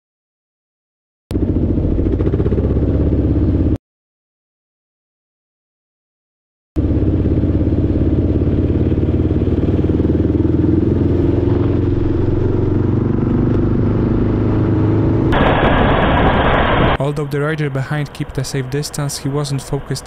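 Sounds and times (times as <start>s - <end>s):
motorcycle engine running: 1.3s - 3.8s, 6.8s - 16.9s.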